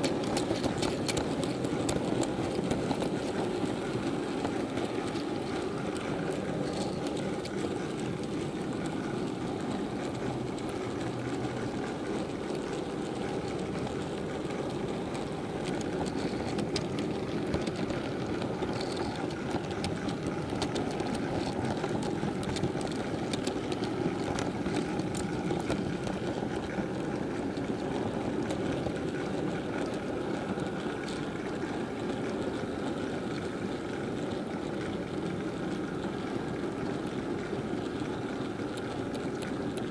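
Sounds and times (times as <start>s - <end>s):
faint clicks: 0.0s - 39.9s
model train rumbling on track: 0.0s - 39.9s.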